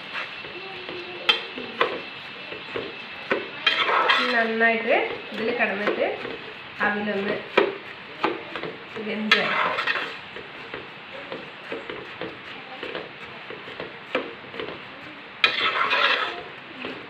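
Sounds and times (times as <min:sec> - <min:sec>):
metal spoon scraping pot: 0:03.6 - 0:04.6, 0:09.3 - 0:10.2, 0:15.4 - 0:16.5.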